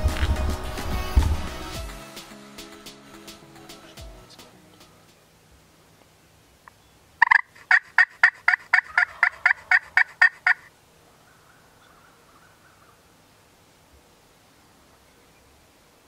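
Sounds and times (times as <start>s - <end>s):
wild turkey yelping: 7.2s - 13.0s.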